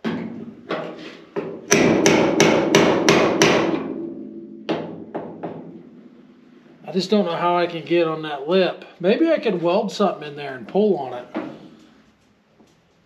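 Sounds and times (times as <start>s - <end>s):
hammer striking sheet metal: 1.4s - 6.9s
sheet metal ringing: 1.7s - 7.3s.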